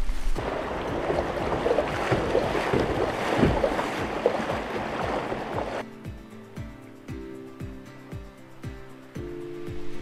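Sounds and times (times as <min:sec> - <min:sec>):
river water rushing: 0:00.4 - 0:05.8
wind buffeting microphone: 0:00.4 - 0:05.8.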